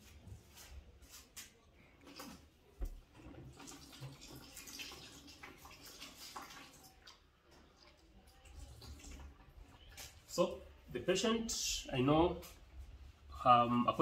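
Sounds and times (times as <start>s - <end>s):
water running and splashing: 2.0s - 10.5s.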